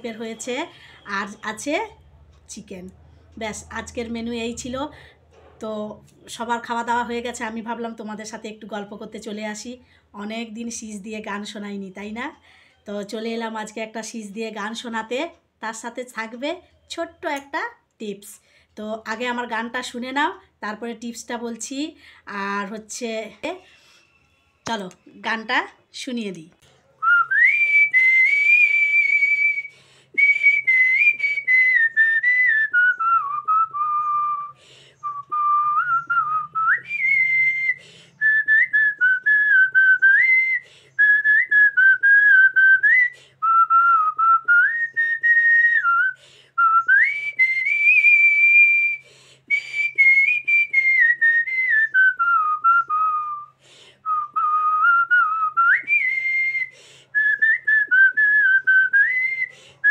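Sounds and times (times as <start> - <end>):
woman whistling a melody: 27.0 - 59.9.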